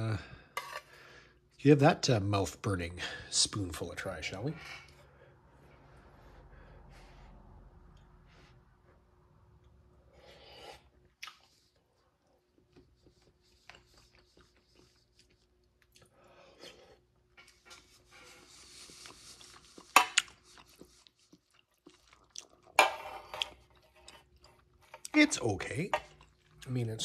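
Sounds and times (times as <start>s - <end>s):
person chewing: 10.8s - 25.2s, 26.0s - 26.7s.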